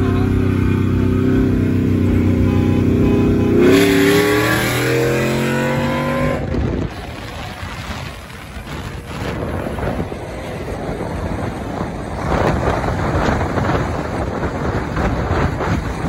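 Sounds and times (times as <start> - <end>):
vehicle road noise: 0.0 - 16.0
wind buffeting microphone: 3.6 - 16.0.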